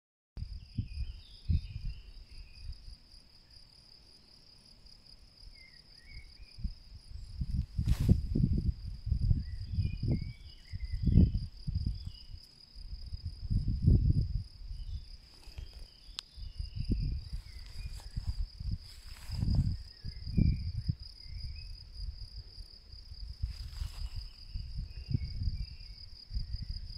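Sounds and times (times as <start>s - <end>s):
insects trilling: 0.4s - 26.9s
low rumbling gusts: 6.6s - 12.1s, 12.8s - 15.2s, 16.4s - 26.9s.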